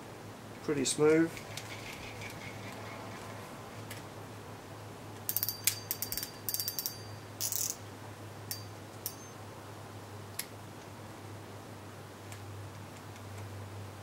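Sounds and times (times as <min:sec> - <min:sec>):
fishing reel clicking and ratcheting: 0:05.3 - 0:07.8.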